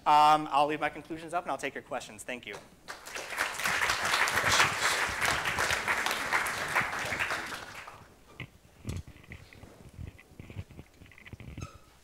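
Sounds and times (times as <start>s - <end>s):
audience applauding: 2.9s - 8.1s.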